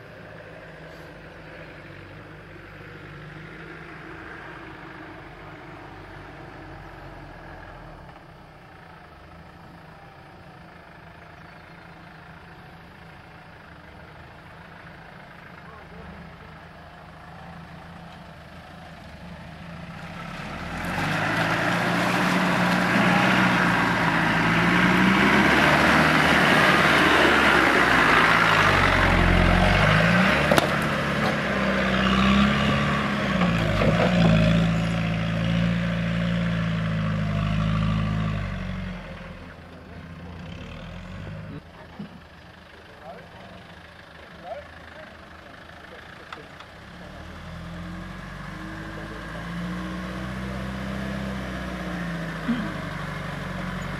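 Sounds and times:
off-road engine revving: 0:15.5 - 0:42.2, 0:42.8 - 0:53.9
branches scraping vehicle body: 0:29.7 - 0:34.7
sharp crack: 0:30.4 - 0:31.4.

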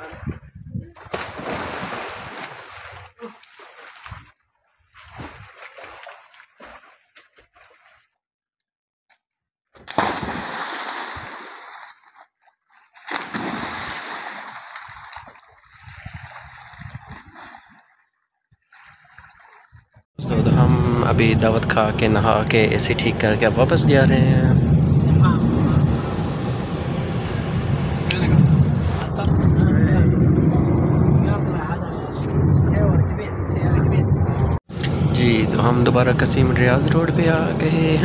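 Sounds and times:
big splashes: 0:00.0 - 0:04.4, 0:05.0 - 0:08.1, 0:09.8 - 0:18.1
sloshing water: 0:00.0 - 0:08.2, 0:09.8 - 0:20.1
people splashing in a pool: 0:01.0 - 0:04.4, 0:05.0 - 0:08.1, 0:09.9 - 0:19.8.

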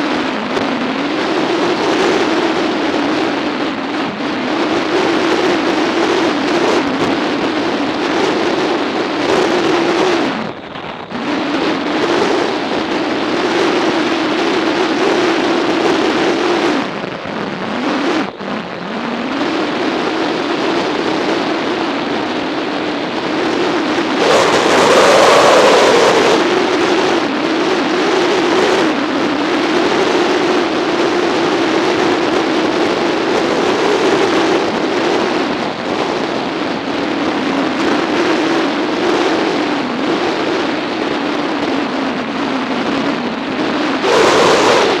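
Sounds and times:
wind rush: 0:00.0 - 0:45.0
motorcycle engine cruising: 0:23.2 - 0:29.1, 0:42.7 - 0:45.0.

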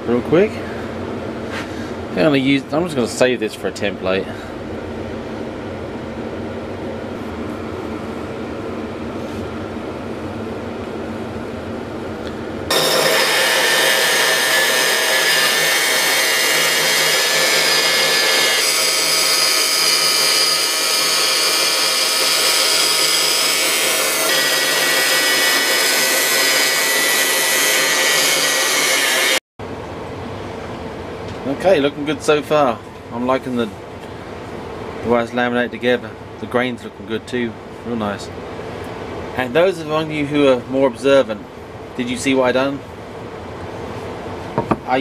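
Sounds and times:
steady low hum: 0:00.0 - 0:26.3
bandsaw cutting wood: 0:12.7 - 0:29.4.

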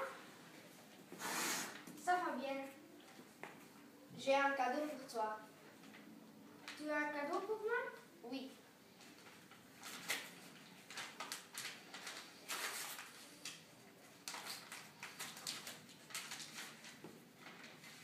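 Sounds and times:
wrapping paper rustling: 0:09.0 - 0:18.0.

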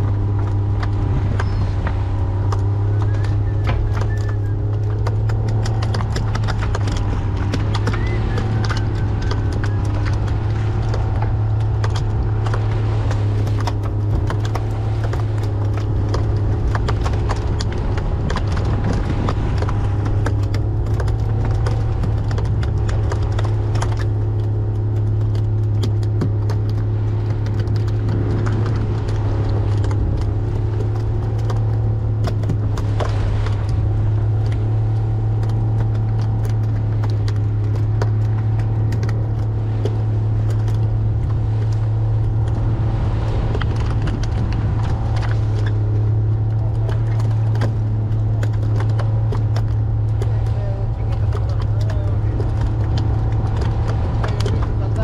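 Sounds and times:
boat motor droning: 0:00.0 - 0:55.0
sharp knocks and clatter: 0:00.0 - 0:55.0.

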